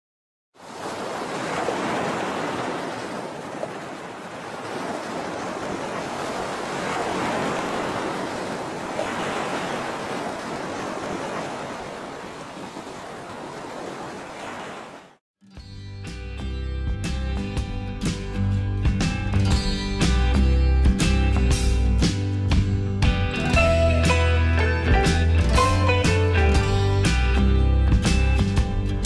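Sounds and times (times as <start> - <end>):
ocean waves washing: 0.6 - 15.2.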